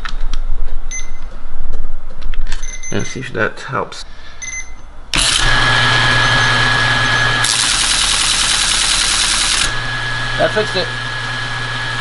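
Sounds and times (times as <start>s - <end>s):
motor hum: 5.1s - 12.0s
teletype mechanical clatter: 7.4s - 9.7s.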